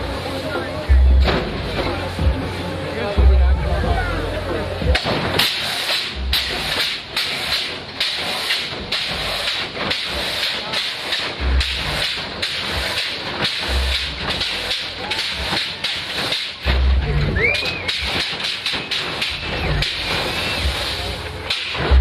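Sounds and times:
truck landing thumps: 1.1s - 2.0s, 4.8s - 10.2s, 15.4s - 20.3s
hydraulic hissing: 4.7s - 22.0s.

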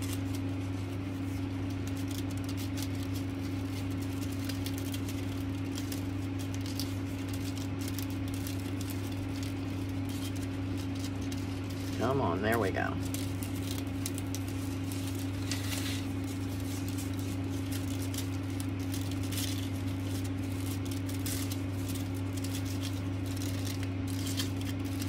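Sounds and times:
ribbon rustling: 0.0s - 25.0s.

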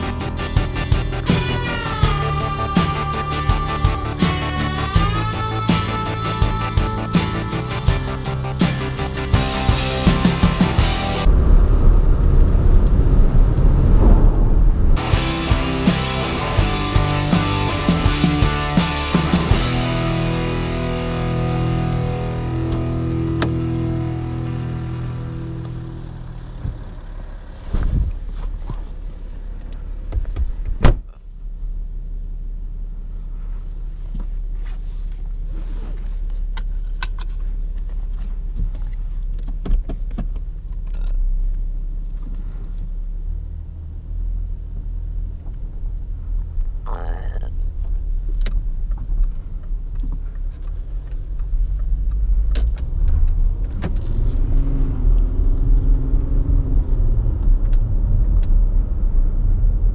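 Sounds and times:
diesel engine rumble: 0.0s - 59.9s
car door thud: 30.1s - 31.1s.

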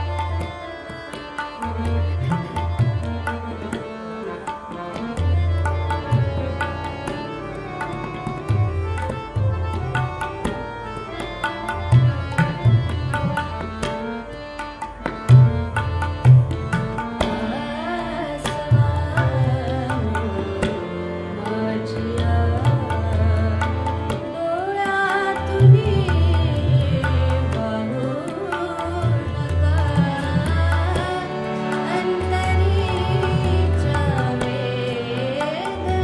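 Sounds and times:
harmonium: 0.0s - 36.0s
tabla strokes: 0.0s - 36.0s
woman singing: 17.2s - 36.0s.

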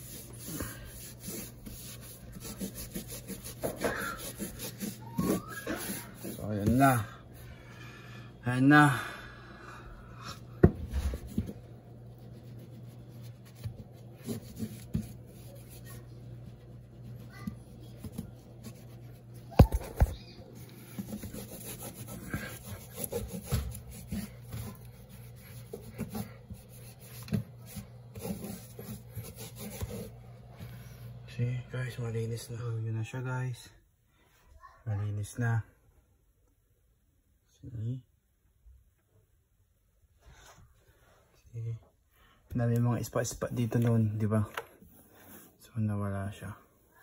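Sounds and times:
damp cloth scrubbing wall: 0.0s - 7.1s, 10.9s - 19.5s, 20.5s - 31.0s.

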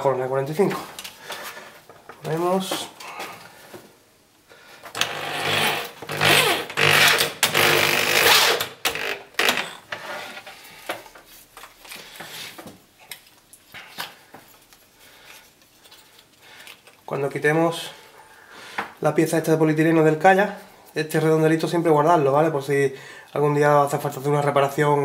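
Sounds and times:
electric drill cutting plastic: 5.0s - 9.6s.

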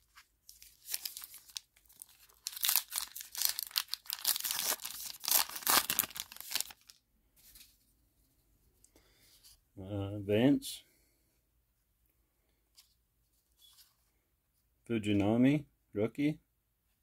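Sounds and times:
wrapper tearing and crinkling: 0.1s - 7.0s.

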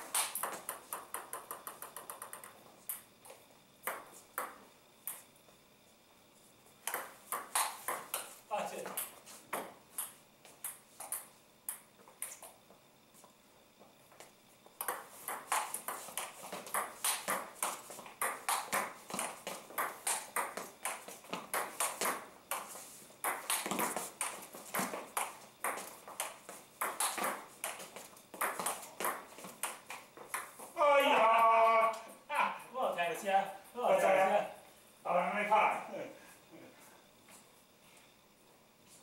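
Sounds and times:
table tennis ball clicking: 0.1s - 3.1s, 6.8s - 8.3s, 18.2s - 22.6s, 23.2s - 27.8s.

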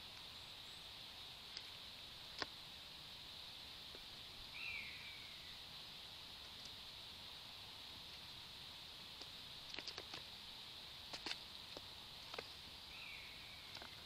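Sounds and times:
steady high hiss: 0.0s - 14.0s.

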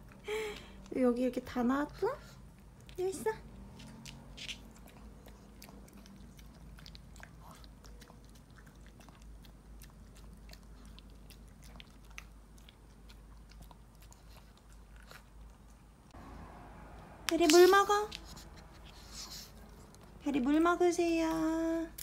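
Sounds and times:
dog chewing food: 2.5s - 16.1s.

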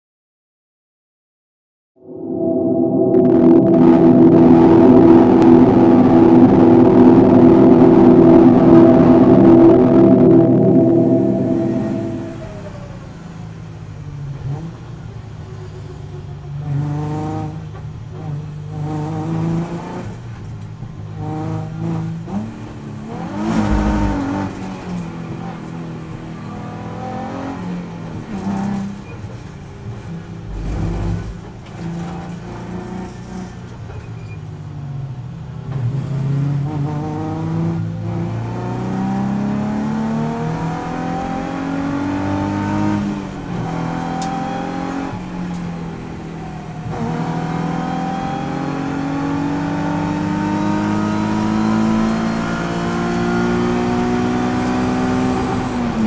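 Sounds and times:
car engine accelerating through gears: 3.1s - 13.2s, 21.1s - 25.7s, 35.7s - 56.0s
deep thumps: 23.5s - 24.8s.

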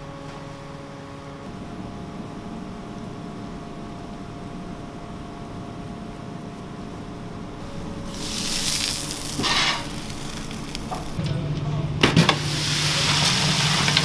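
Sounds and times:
steady background hum: 0.0s - 14.0s
wrap sizzling on griddle: 7.9s - 11.2s, 12.4s - 14.0s.

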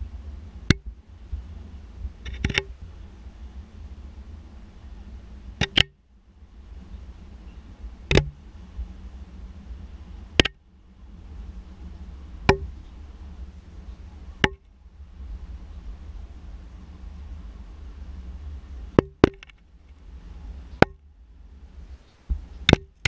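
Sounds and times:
low steady rumble: 0.0s - 23.0s
sharp knocks: 8.1s - 8.4s, 12.5s - 12.8s.

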